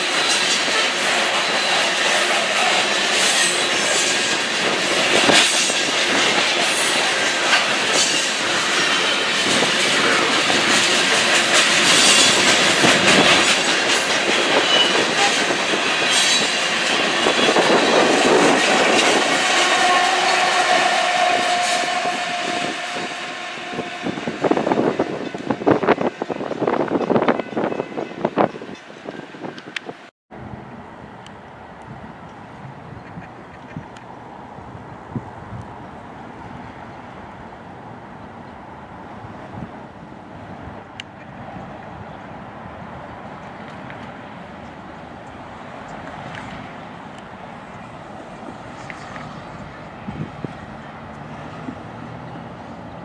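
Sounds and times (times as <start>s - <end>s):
clickety-clack over rail joints: 0.0s - 22.6s, 43.2s - 52.8s
train wheels rumbling on rails: 0.0s - 30.6s, 39.0s - 53.0s
wheel squeal: 14.3s - 22.7s.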